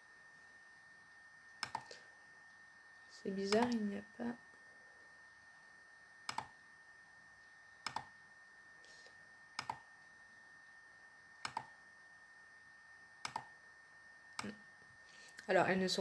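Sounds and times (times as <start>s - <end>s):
computer mouse clicks: 1.6s - 1.9s, 3.5s - 3.8s, 6.2s - 6.6s, 7.8s - 8.1s, 9.6s - 9.8s, 11.4s - 11.8s, 13.2s - 13.5s.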